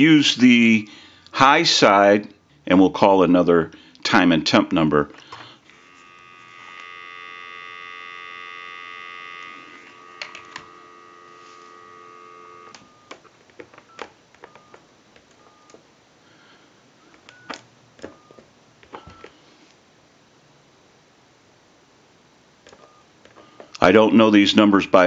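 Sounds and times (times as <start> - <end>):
telephone dial tone: 5.7 - 15.8.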